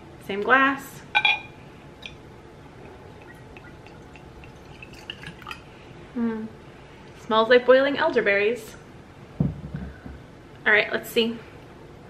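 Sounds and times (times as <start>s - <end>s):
liquid trickling into glass: 2.8s - 5.7s.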